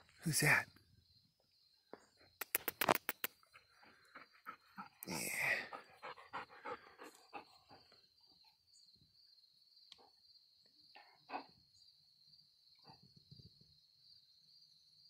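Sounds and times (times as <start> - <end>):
insects chirring: 0.2 - 15.0
dog panting: 3.4 - 8.4.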